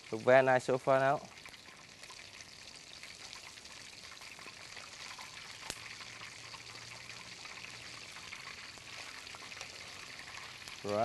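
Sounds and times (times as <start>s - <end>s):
oil sizzling and crackling: 0.0s - 11.0s.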